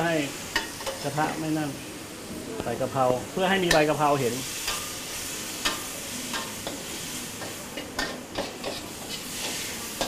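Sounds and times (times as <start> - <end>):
food sizzling in wok: 0.0 - 10.0
spatula scraping wok: 3.7 - 10.0
spatula clanking on wok: 5.6 - 10.0.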